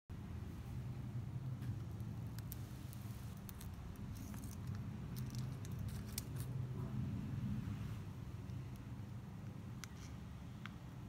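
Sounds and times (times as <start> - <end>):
steady low hum: 0.1 - 11.0.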